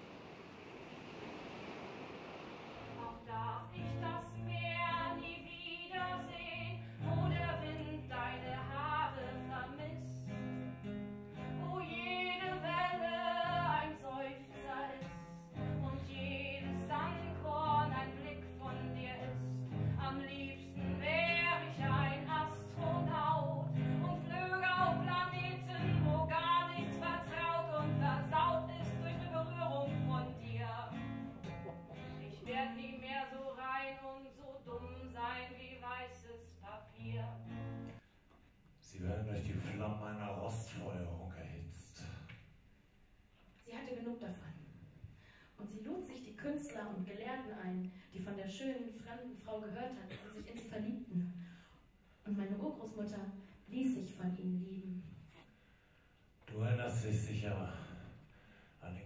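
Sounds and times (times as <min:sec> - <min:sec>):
woman singing into microphone: 0:03.0 - 0:10.2, 0:11.6 - 0:31.0, 0:32.1 - 0:37.4.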